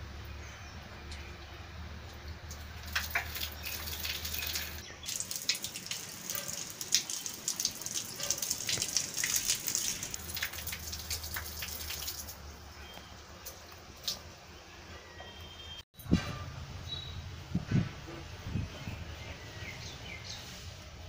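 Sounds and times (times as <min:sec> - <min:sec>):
water splattering on concrete: 0:02.0 - 0:12.4, 0:13.4 - 0:14.2.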